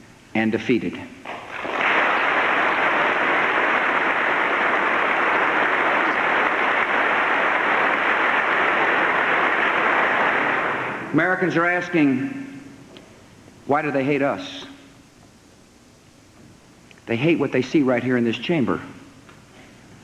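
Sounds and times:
large crowd applauding: 1.3 - 11.1.

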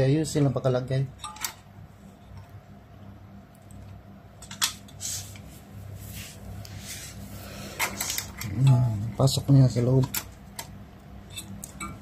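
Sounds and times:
steady low hum: 0.0 - 12.0
rustles and scrapes of hands: 4.9 - 8.4.

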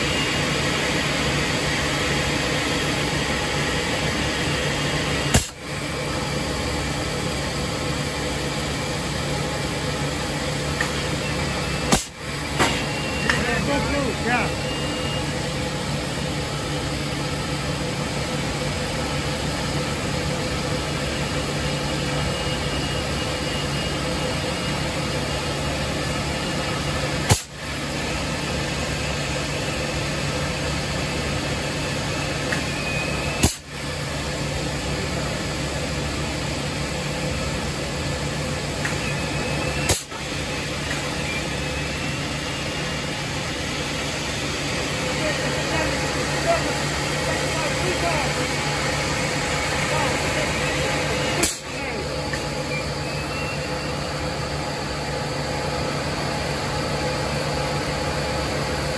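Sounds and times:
industrial machinery hum: 0.0 - 58.9.

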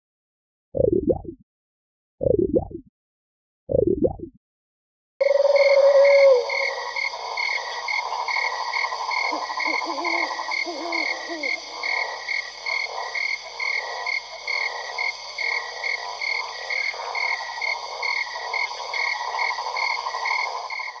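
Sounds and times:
higher frog call: 5.2 - 20.9
frogs trilling: 5.2 - 21.0
low wavering frog calls: 5.2 - 21.0.

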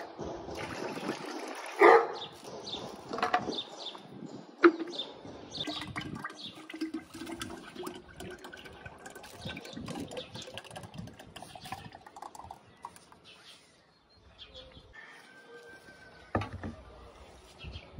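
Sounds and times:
liquid pouring into glass jar: 0.6 - 1.8, 5.6 - 13.2.

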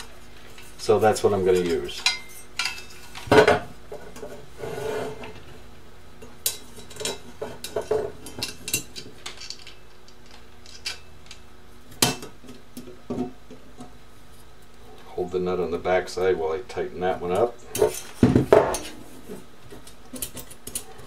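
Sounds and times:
metal parts knocking and scraping: 6.4 - 11.4.

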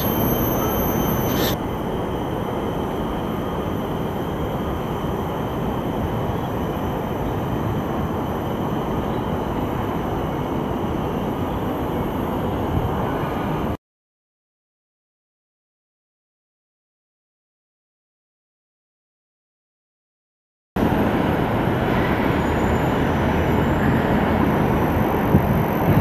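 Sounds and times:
faint high tones: 0.0 - 1.7.

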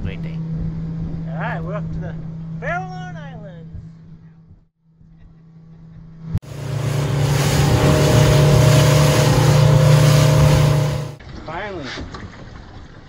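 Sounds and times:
boat engine droning: 6.4 - 11.2
rush of water and wind: 6.4 - 11.2.

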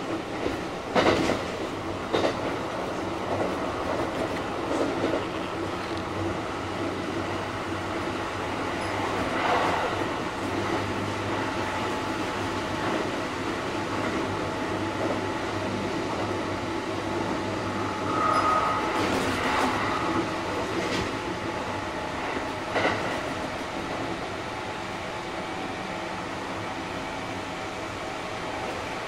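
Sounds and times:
train wheels rolling on rail: 0.0 - 29.0
short high tone: 17.9 - 19.1.

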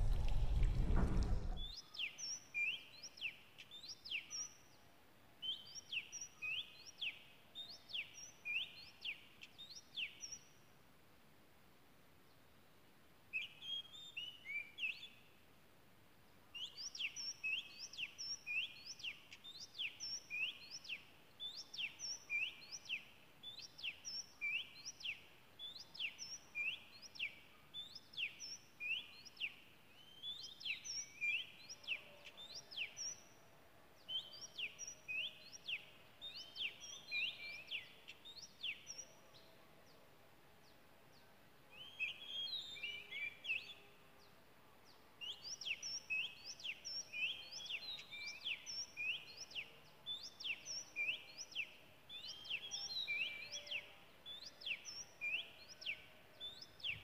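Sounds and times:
bird singing whistled notes: 16.6 - 33.4, 34.1 - 39.2, 41.8 - 43.9, 45.2 - 57.0.

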